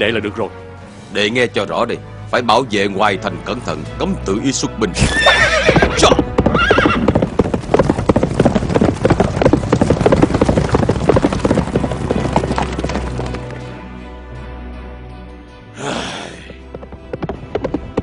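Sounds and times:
background music: 0.0 - 18.0
horse whinnying: 5.0 - 7.3
galloping hoofbeats: 5.0 - 13.8, 16.4 - 18.0.

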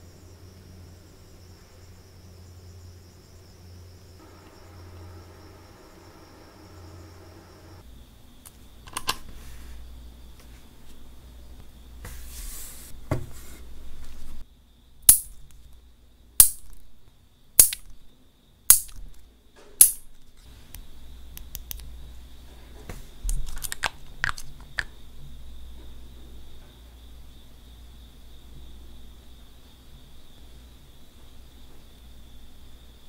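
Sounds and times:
nail clipper snipping: 15.1 - 15.5, 16.4 - 16.8, 17.6 - 18.0, 18.7 - 19.2, 19.8 - 20.1.

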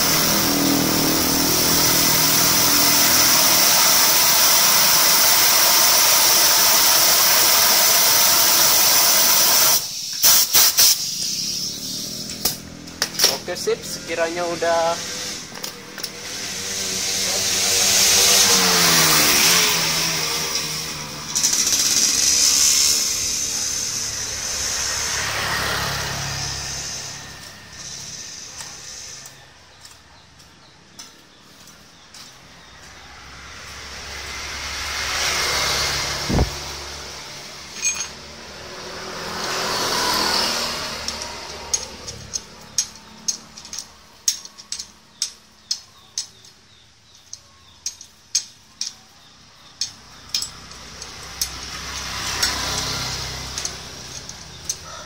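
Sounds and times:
passing road traffic: 0.0 - 55.0
irregular small ticks: 40.1 - 55.0.

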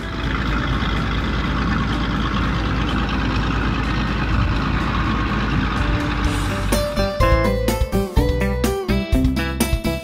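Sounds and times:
truck engine idling: 0.0 - 10.0.

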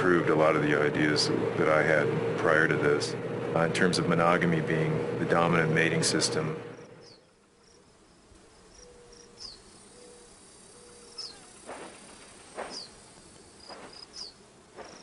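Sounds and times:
faint steady hiss: 6.8 - 15.0.

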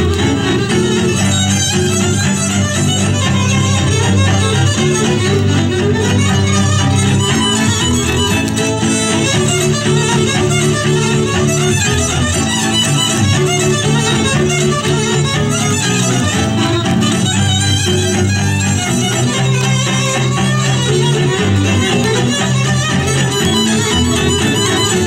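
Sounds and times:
fiddle playing fast tune: 0.0 - 25.0
folk dance music: 0.0 - 25.0.

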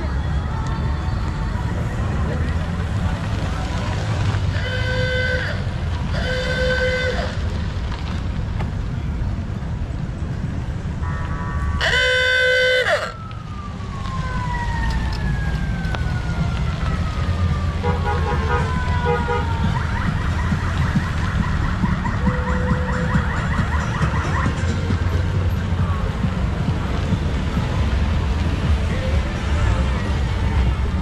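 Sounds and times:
multi-tone horn blast: 4.5 - 7.4, 17.8 - 19.6.

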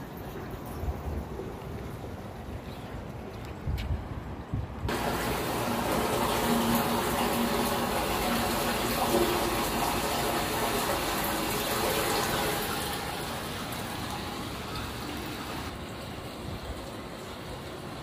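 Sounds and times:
storm water gushing in a drain: 4.9 - 18.0.

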